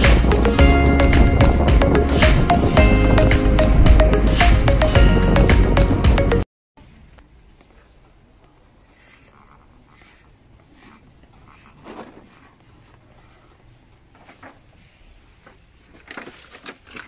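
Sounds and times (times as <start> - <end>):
faint rustling and handling: 6.8 - 17.0.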